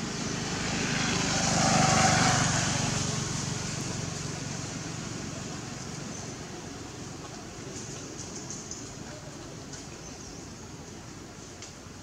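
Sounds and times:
vehicle engine passing by: 0.0 - 6.1.

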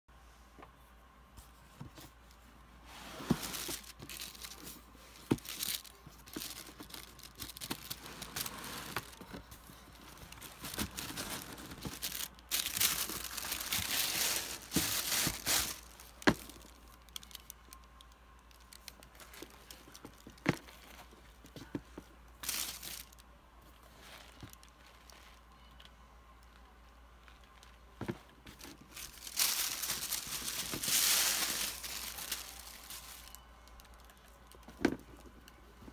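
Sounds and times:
paper rustling and crinkling: 3.0 - 17.5, 27.3 - 33.4.

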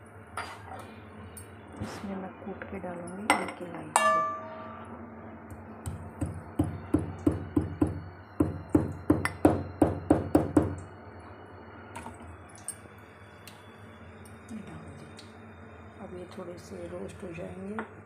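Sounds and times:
metal pestle knocking in mortar: 5.9 - 10.8.

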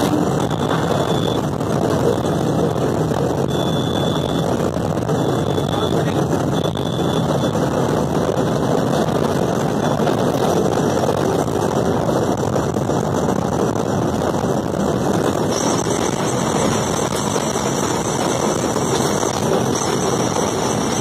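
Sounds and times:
faint high whine: 0.0 - 7.8
wheels on rail and wind rush: 0.0 - 21.0.

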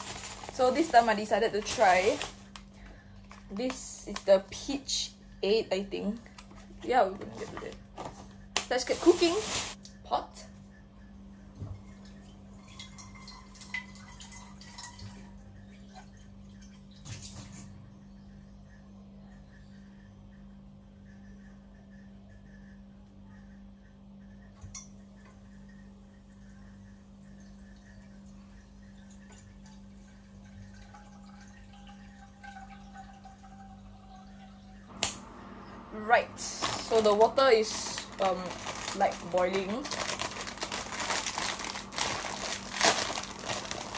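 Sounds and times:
steady low hum: 0.0 - 43.9
water dripping and splashing: 11.9 - 17.7, 27.4 - 35.1.

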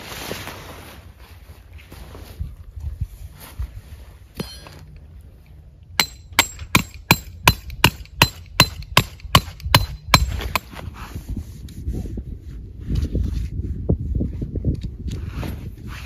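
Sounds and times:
hammer striking tent peg: 6.0 - 10.8.

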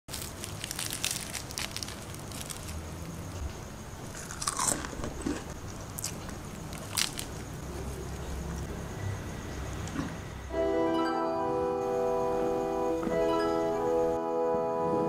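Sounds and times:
pastry crackling and crunching: 0.1 - 3.4, 4.0 - 7.6.

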